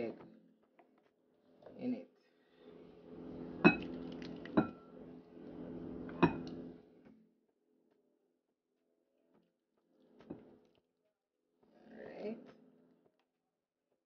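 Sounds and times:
wet scraping pour: 3.7 - 4.6.

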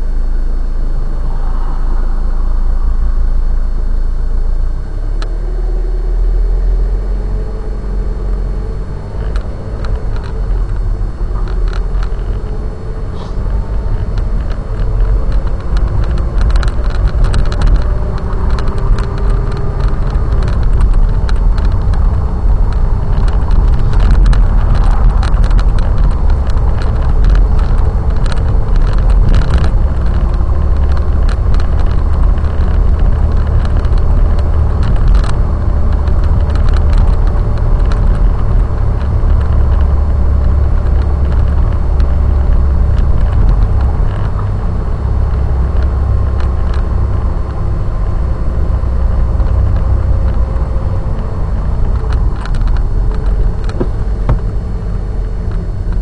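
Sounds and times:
car engine and road rumble: 0.0 - 56.0
small clicks and rattles: 7.4 - 56.0.

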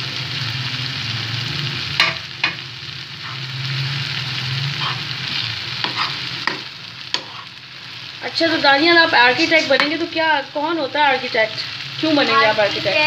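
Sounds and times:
vegetables sizzling in frying pan: 0.0 - 13.0
metal spoon stirring: 4.8 - 7.6.

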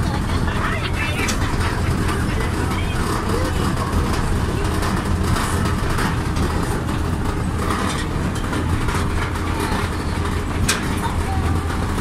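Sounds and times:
vehicle engine running: 0.0 - 12.0
rattles and knocks: 1.2 - 12.0.

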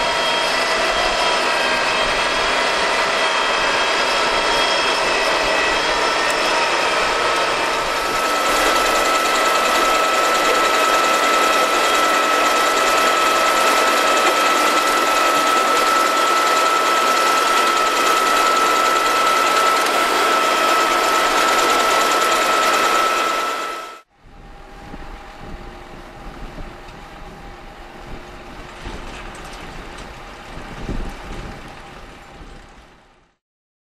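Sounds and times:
high machine whine: 0.0 - 33.2
tractor and potato lifter running: 3.6 - 24.0, 28.5 - 32.7.

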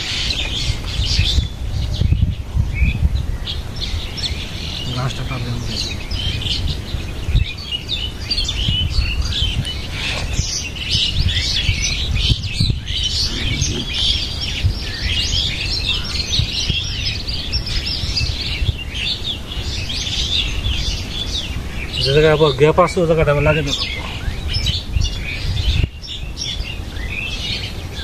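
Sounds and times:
small birds chirping: 0.0 - 28.0
low rumble: 12.7 - 14.9.

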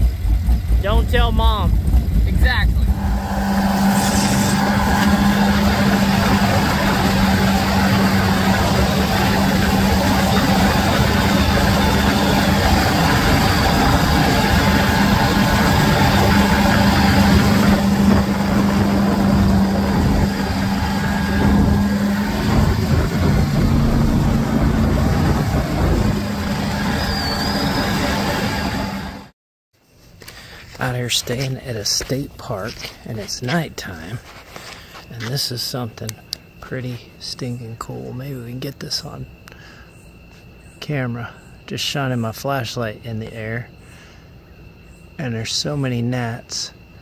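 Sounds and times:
boat engine running: 0.0 - 29.3.

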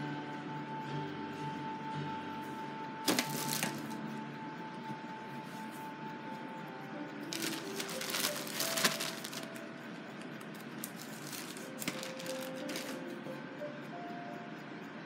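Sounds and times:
soft ambient music from radio: 0.0 - 15.0
crinkling rustling handling: 3.1 - 3.8, 7.3 - 9.6, 10.8 - 13.0.

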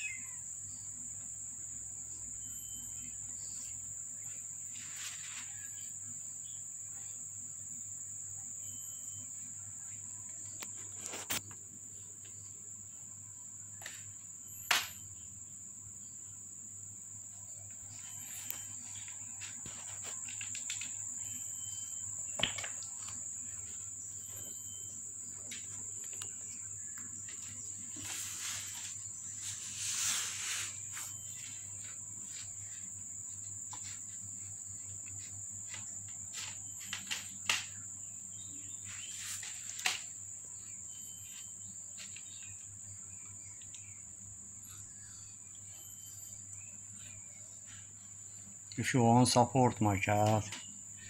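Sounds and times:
insect trilling: 0.0 - 4.6, 16.8 - 51.0.

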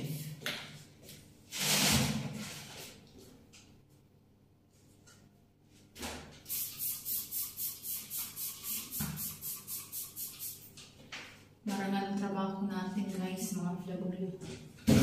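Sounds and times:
spray bottle squirts: 6.5 - 10.7.

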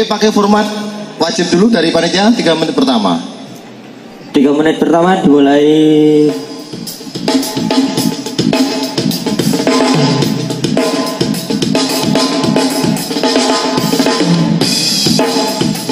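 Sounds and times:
drum-led music over loudspeakers: 5.9 - 15.9.

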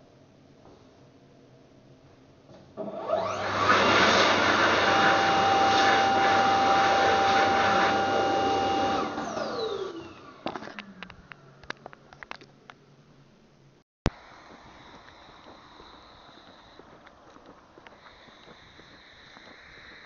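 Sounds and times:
hand dryer blowing: 2.8 - 10.4.

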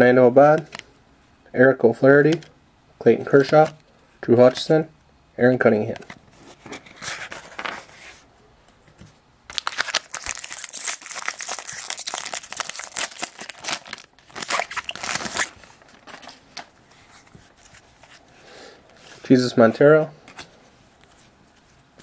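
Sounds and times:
foil wrapper tearing and crinkling: 9.5 - 16.4.

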